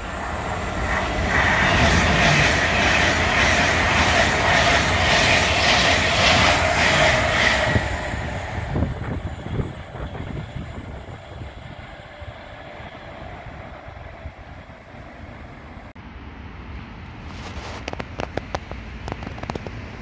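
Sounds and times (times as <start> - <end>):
wheels clattering on rails: 0.0 - 11.5, 17.7 - 20.0
train passing at speed: 0.0 - 20.0.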